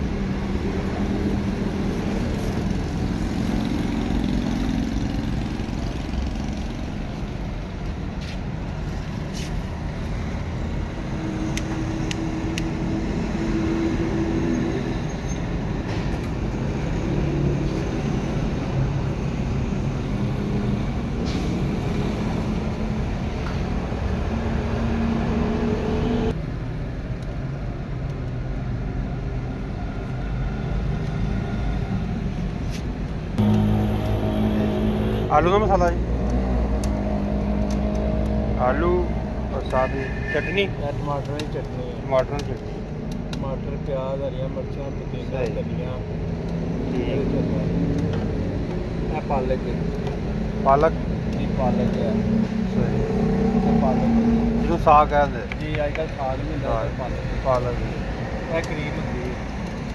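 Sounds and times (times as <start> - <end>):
road traffic rumble: 0.0 - 59.9
engine hum shifting in pitch: 10.1 - 26.4, 33.4 - 41.0, 46.0 - 55.1.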